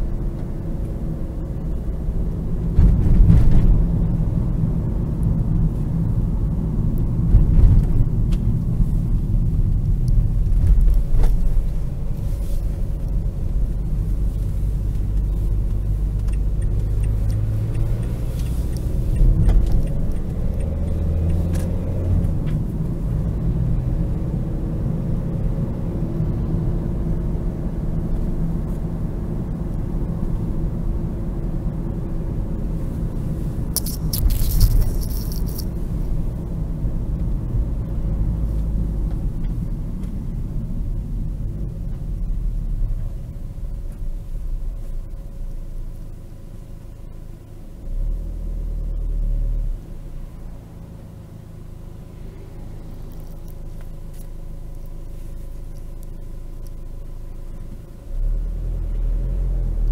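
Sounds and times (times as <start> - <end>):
diesel engine running: 0.0 - 59.9
road rumble: 0.0 - 59.9.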